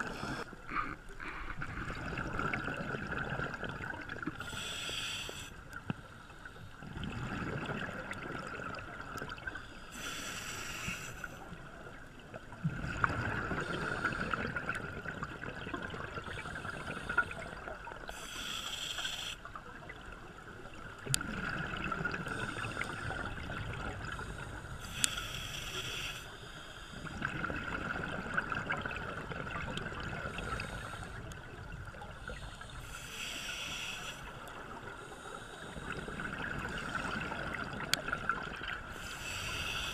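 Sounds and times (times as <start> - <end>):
regulator inhalation hiss: 0.0 - 0.5, 4.4 - 5.6, 9.7 - 11.5, 18.1 - 19.5, 24.3 - 27.0, 32.3 - 37.2, 38.9 - 39.9
exhaled bubbles rumbling: 1.2 - 4.4, 6.8 - 9.6, 12.5 - 17.6, 20.8 - 24.4, 27.0 - 32.5.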